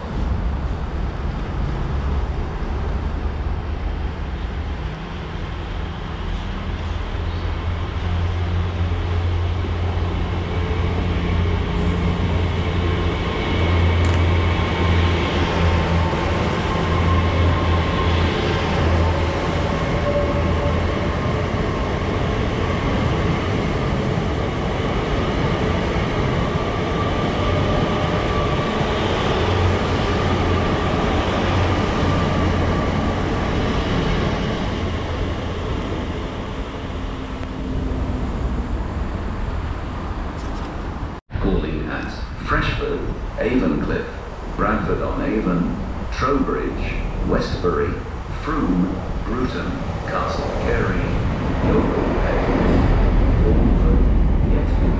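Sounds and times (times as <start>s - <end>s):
train engine hum: 0.0s - 54.9s.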